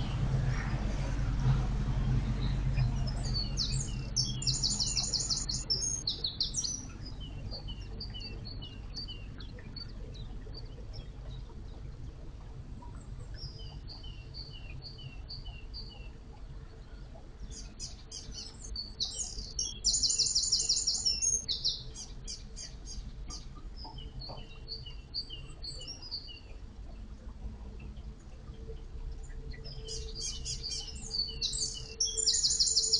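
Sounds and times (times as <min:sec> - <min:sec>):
propeller churning water: 0:00.0 - 0:32.9
songbirds chirping: 0:00.0 - 0:32.9
rapid bird trill: 0:29.9 - 0:32.9.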